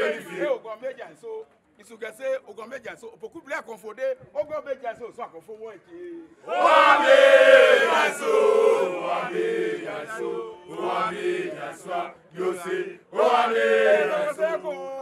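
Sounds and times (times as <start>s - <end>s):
men chanting together: 0.0s - 0.6s, 6.5s - 15.0s.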